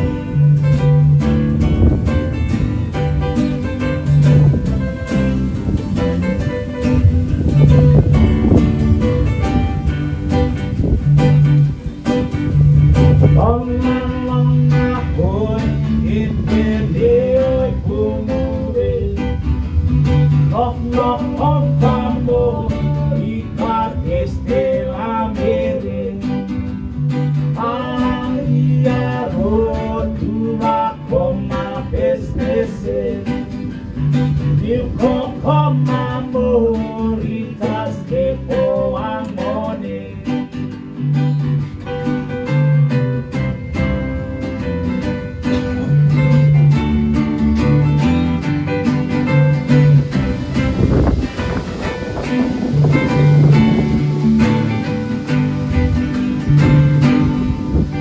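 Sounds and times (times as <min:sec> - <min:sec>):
electronic keyboard: 0:00.0 - 0:13.7
bass guitar: 0:00.0 - 0:58.0
strummed acoustic guitars: 0:00.0 - 0:58.0
person singing: 0:13.1 - 0:19.6, 0:20.3 - 0:26.7, 0:27.5 - 0:33.6, 0:34.5 - 0:40.6.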